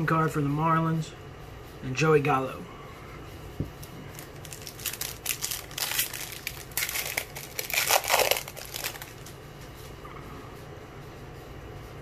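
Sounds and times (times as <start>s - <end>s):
plastic wrapper tearing and crinkling: 3.8s - 9.3s.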